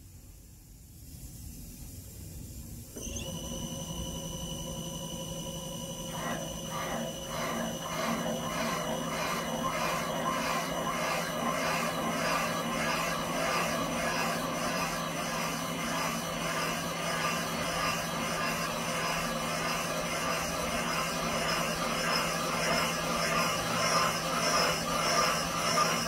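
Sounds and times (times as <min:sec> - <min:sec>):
valve seat cutter motor whine: 0:03.0 - 0:26.0
rhythmic scraping of cutting bit: 0:05.3 - 0:26.0.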